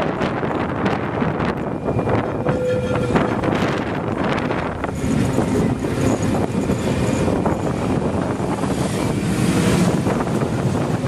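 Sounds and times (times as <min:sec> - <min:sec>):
tram wheels rumbling on rails: 0:00.0 - 0:11.0
wind on microphone: 0:00.0 - 0:11.0.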